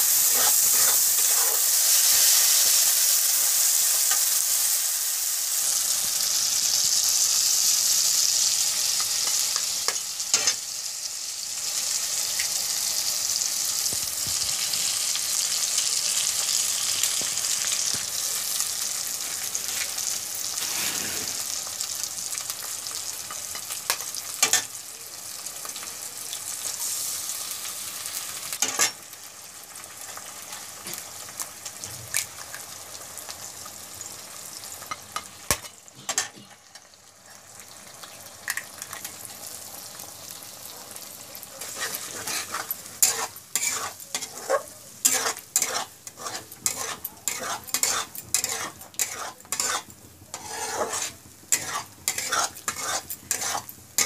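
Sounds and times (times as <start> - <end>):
eggs sizzling in oil: 0.0 - 54.0
metal spatula scraping pan: 0.1 - 2.3, 20.6 - 21.5, 41.6 - 54.0.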